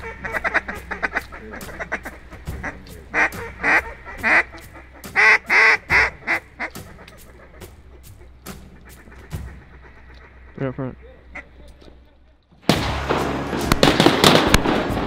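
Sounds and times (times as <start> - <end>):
duck quacks: 0.0 - 11.7
rapid clicking chatter: 0.2 - 10.6.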